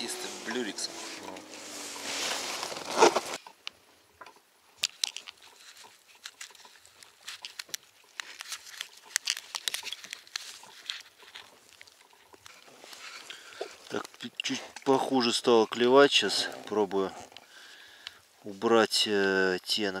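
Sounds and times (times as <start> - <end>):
small clicks and crinkles: 2.3 - 15.0.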